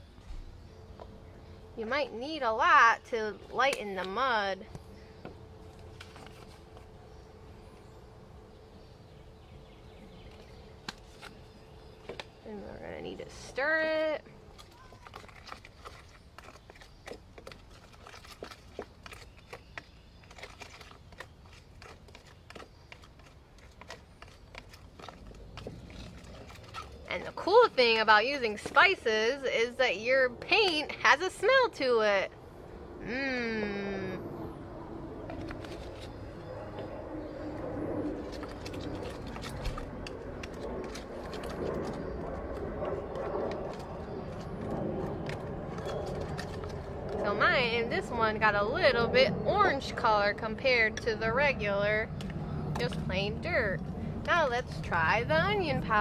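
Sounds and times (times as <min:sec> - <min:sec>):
toy shovel stirring mud: 0:14.5 - 0:29.0.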